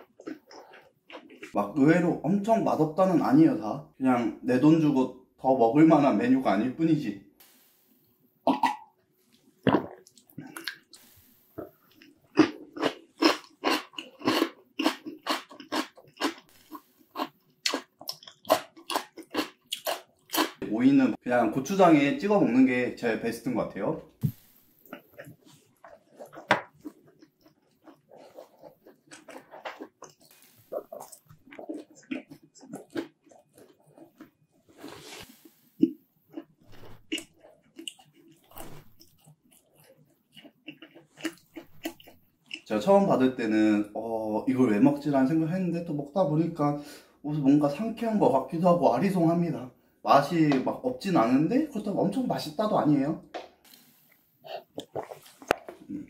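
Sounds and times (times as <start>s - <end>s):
chewing crunchy cucumber: 0.0s - 1.6s, 11.6s - 20.7s, 24.2s - 42.8s, 53.7s - 56.0s
breathing: 46.8s - 47.2s, 49.8s - 50.0s, 53.7s - 54.6s.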